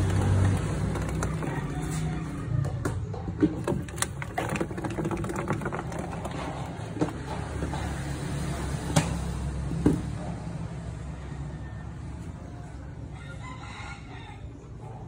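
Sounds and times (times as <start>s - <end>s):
clicks and scrapes on plastic tub: 0.0s - 8.1s.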